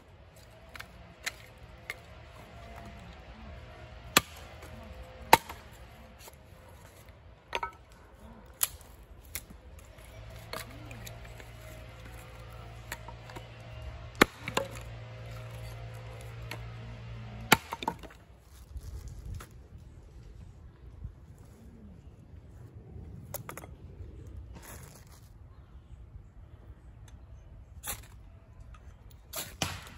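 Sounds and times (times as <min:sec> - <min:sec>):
hatchet chopping wood: 0:00.6 - 0:03.3, 0:03.9 - 0:07.9, 0:10.2 - 0:18.2, 0:29.4 - 0:29.9.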